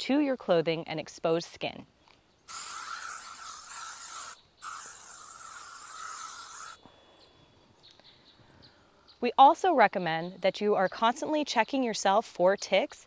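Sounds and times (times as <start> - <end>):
spray bottle hissing: 2.5 - 6.8.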